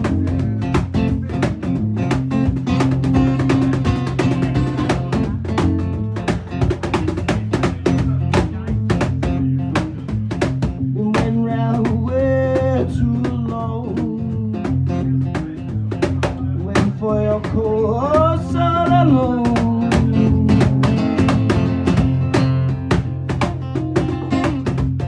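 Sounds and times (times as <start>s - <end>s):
percussion beat: 0.0s - 25.0s
strummed acoustic guitar: 0.0s - 25.0s
person singing: 10.9s - 15.4s, 16.3s - 21.2s.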